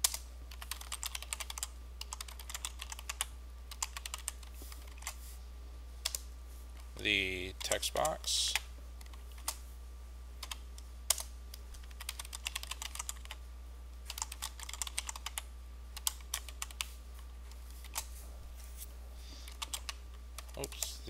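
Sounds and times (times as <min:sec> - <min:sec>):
keyboard typing: 0:00.0 - 0:05.2, 0:07.6 - 0:09.6, 0:10.4 - 0:13.4, 0:14.0 - 0:16.9, 0:17.5 - 0:18.1, 0:19.5 - 0:20.9
steady low hum: 0:00.0 - 0:21.0.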